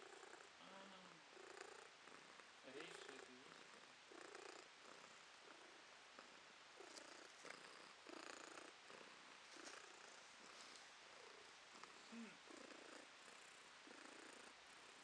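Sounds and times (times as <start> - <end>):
cat purring: 0.0 - 15.0.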